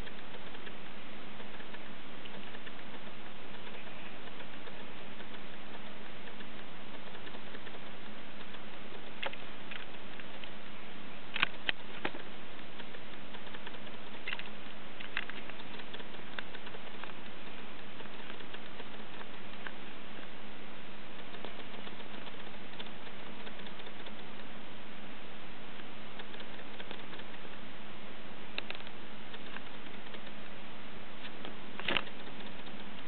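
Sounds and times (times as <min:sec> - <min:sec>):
small sharp clicks: 0:00.0 - 0:24.6, 0:25.7 - 0:27.7, 0:28.4 - 0:33.0
faint low hum: 0:00.0 - 0:33.0
steady hiss: 0:00.0 - 0:33.0.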